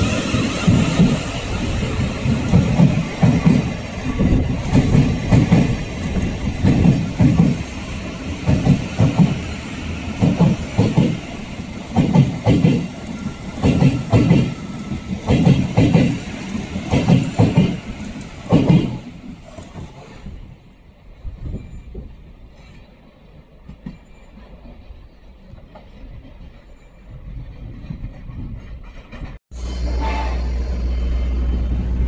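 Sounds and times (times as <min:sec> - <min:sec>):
railcar wheels clacking over joints: 0:00.0 - 0:20.1.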